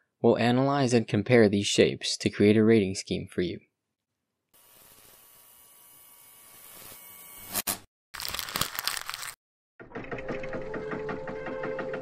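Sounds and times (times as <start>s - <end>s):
paper rustling: 8.2s - 9.4s.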